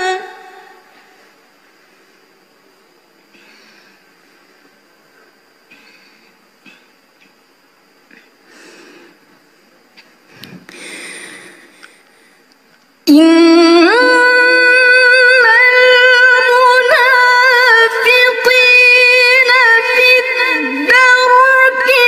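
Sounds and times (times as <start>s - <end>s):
woman chanting melodically: 0.0s - 1.2s, 13.1s - 22.0s.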